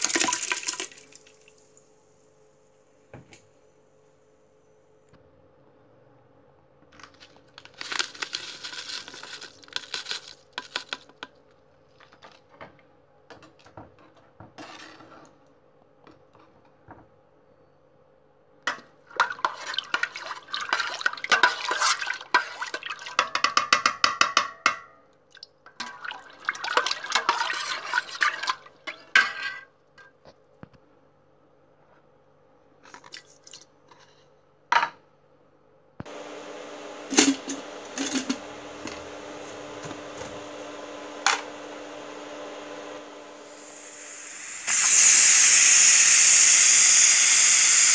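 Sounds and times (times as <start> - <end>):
metal spoon stirring in a pot: 19.2 - 23.2.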